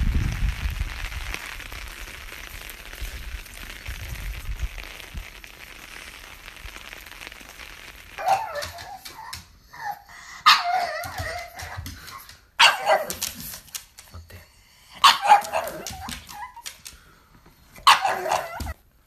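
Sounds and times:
steady hiss: 0.0 - 9.7
dog barking: 8.2 - 11.9, 12.6 - 13.5, 15.0 - 16.6, 17.8 - 18.8.

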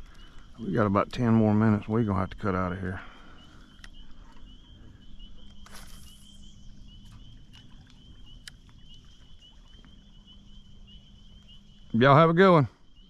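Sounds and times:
light clicks: 3.5 - 4.5, 7.1 - 8.9.

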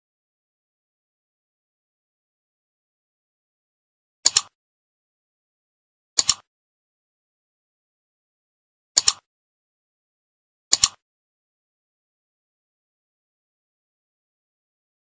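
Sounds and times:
mouse double clicks: 4.2 - 4.6, 6.2 - 6.5, 9.0 - 9.3, 10.7 - 11.0.

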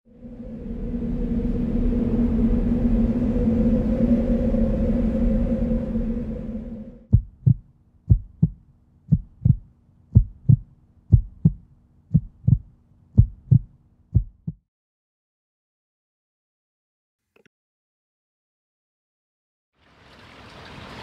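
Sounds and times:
heartbeat thumps: 7.1 - 14.6.

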